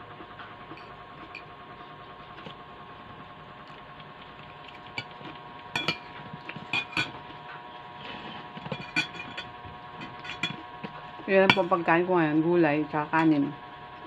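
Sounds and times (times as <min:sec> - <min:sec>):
faint steady hum: 0:00.0 - 0:14.0
cutlery scraping a ceramic plate: 0:05.8 - 0:07.2, 0:08.0 - 0:10.6.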